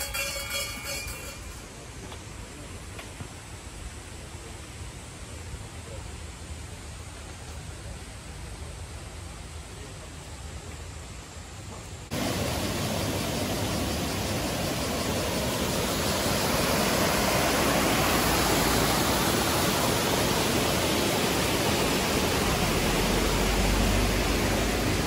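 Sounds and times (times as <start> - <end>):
rushing river water: 12.1 - 25.0.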